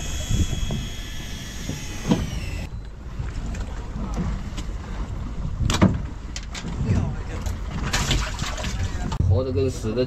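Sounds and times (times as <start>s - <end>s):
small electric motor whining: 0.0s - 2.7s
boat rumble: 0.0s - 10.0s
wind: 0.0s - 10.0s.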